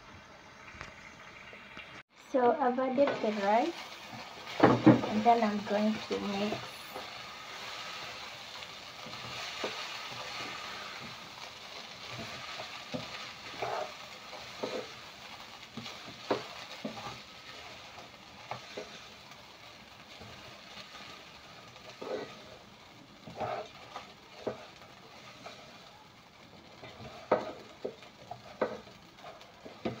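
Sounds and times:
rice and beef sizzling in a pot: 0.0 - 30.0
spoon knocking and scraping a pot: 26.8 - 28.9.

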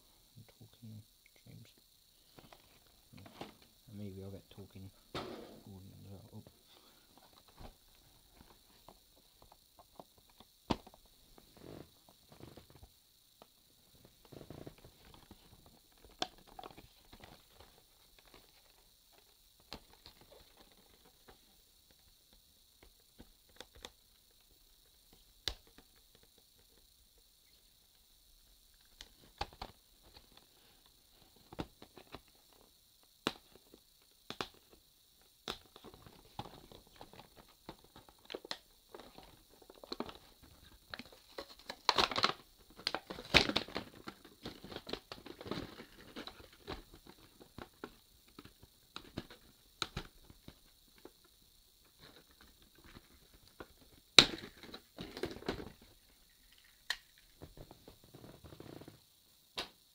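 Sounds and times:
plastic blister packaging crinkling: 35.4 - 50.1
sharp plastic crack: 41.4 - 45.7.

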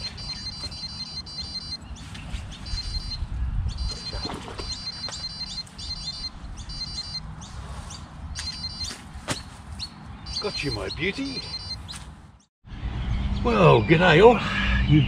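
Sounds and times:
wind buffeting microphone: 0.0 - 12.2
birds chirping: 0.0 - 15.0
bird whistles rising: 2.6 - 7.2.

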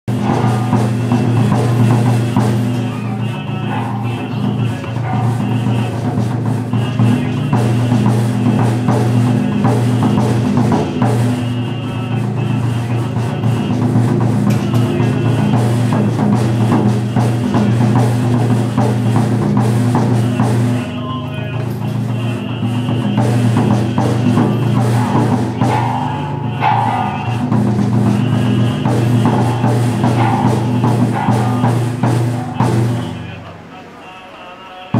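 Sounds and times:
drum beaten in quick rhythm: 0.0 - 34.9
steady low drone: 0.1 - 33.9.

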